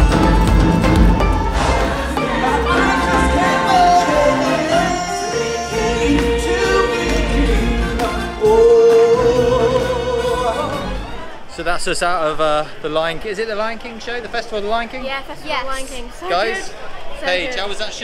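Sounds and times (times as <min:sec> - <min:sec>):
heavy bass: 0:00.0 - 0:11.2
choir singing long notes: 0:00.0 - 0:11.4.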